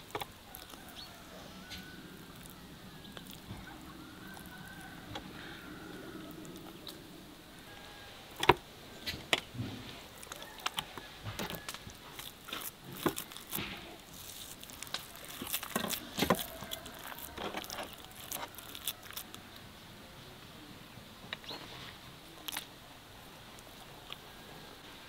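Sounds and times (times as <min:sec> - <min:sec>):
hands pressing stuffed fish: 0:10.2 - 0:19.3.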